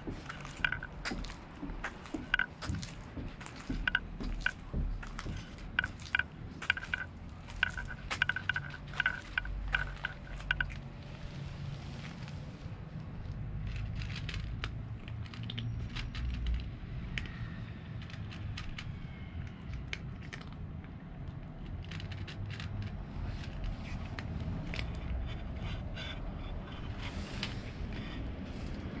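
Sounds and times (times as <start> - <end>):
cat chewing dry kibble: 0.0 - 29.0.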